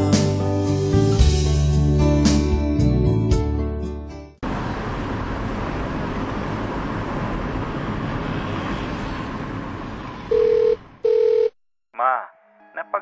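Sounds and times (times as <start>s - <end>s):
road noise inside moving car: 4.4s - 11.0s
telephone ringing tone: 10.3s - 11.6s.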